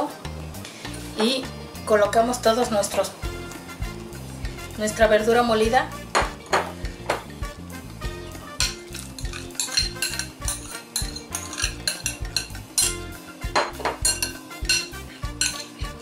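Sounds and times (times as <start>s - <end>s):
metal spoon clinking on glass: 8.6s - 15.8s.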